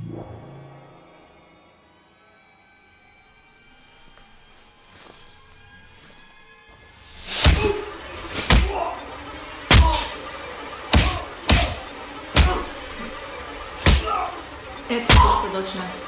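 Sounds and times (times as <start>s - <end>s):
low background music: 0.0s - 16.0s
heavy punches landing: 7.3s - 8.8s, 9.7s - 10.2s, 10.9s - 11.8s, 12.4s - 12.8s, 13.8s - 14.2s, 15.1s - 15.5s.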